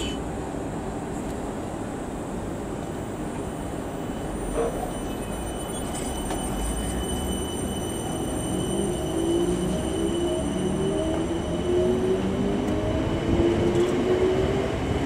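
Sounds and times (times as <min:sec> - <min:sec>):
train wheels rumbling on rails: 0:00.0 - 0:15.0
thin high whine: 0:04.1 - 0:13.3.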